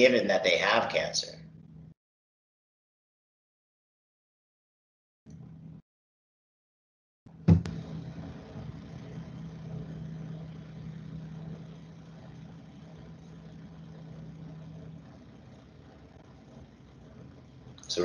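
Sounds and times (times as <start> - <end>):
low machine hum: 0.0 - 2.0, 5.3 - 5.8, 7.3 - 18.0.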